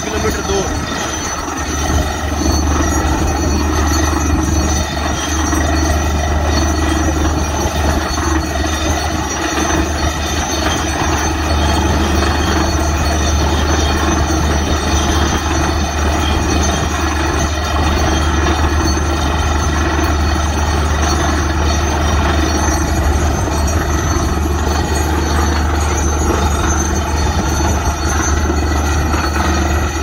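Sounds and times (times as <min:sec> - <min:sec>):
drilling rig engine drone: 0:00.0 - 0:30.0.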